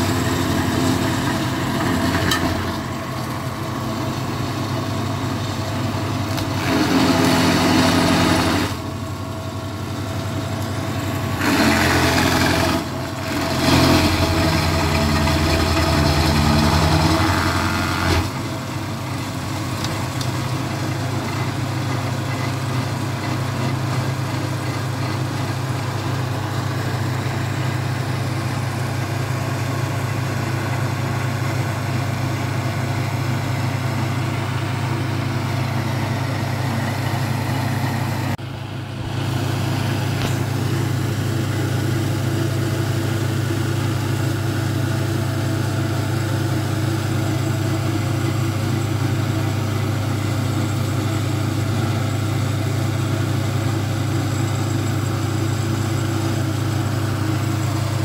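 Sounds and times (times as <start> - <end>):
stump grinder engine running: 0.0 - 58.0.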